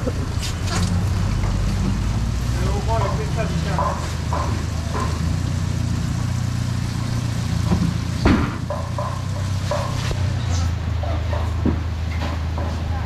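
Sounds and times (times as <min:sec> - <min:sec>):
vehicle engine idling: 0:00.0 - 0:13.0
sharp knock: 0:08.2 - 0:09.1.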